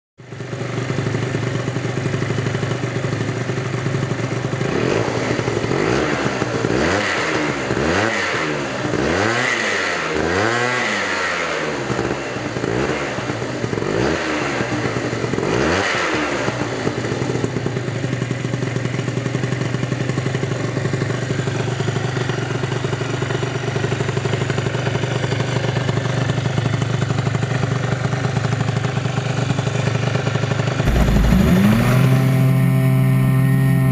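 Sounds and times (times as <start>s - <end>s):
scooter engine idling and revving: 0.2s - 33.9s.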